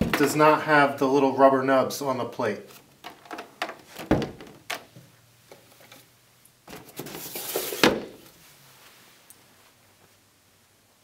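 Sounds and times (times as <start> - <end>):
scraping rustle: 6.8 - 9.8.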